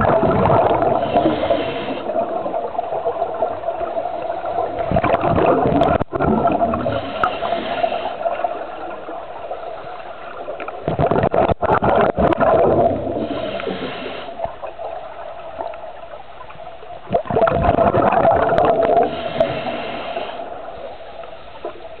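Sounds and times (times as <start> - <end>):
gurgling exhaled bubbles: 0.0 - 15.8, 17.0 - 20.8
regulator inhale hiss: 1.0 - 2.3, 6.9 - 8.6, 13.1 - 14.7, 19.0 - 22.0.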